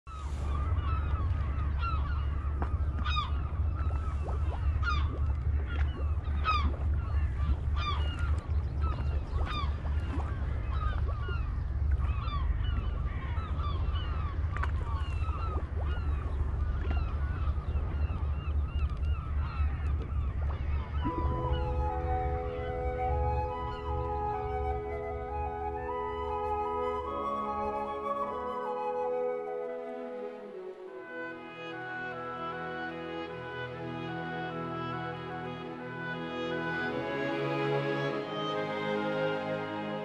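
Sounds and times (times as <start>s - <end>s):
birds honking: 0.2s - 27.4s.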